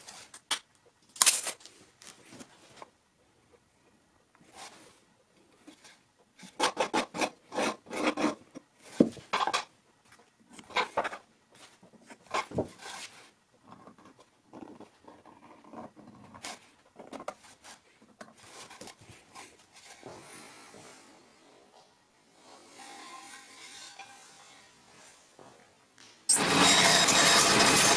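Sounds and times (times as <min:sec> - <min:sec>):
marking tools scratching on board: 0:06.6 - 0:08.4.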